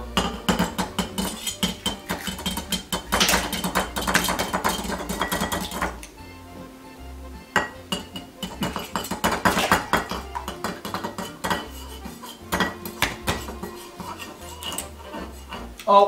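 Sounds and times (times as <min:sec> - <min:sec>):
fork whisking eggs in bowl: 0:00.4 - 0:06.1, 0:07.9 - 0:15.9.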